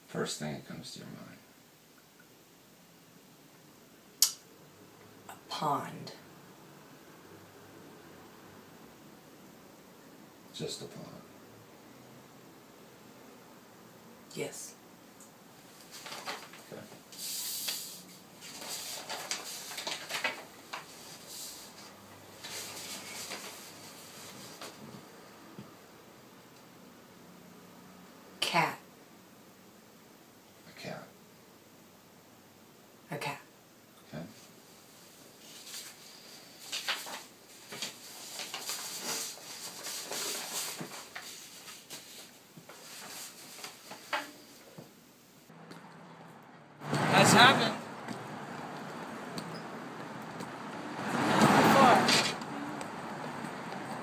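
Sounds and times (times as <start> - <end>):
paper cards sliding on wooden table: 17.1 - 24.8, 35.4 - 44.4.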